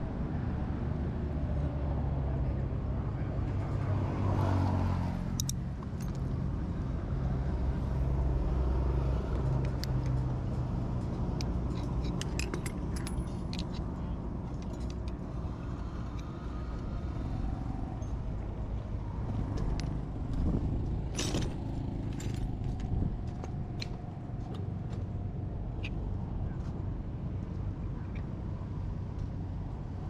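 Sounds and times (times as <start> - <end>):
steady low rumble: 0.0 - 3.7, 5.3 - 30.0
metal tools clinking: 11.2 - 15.2.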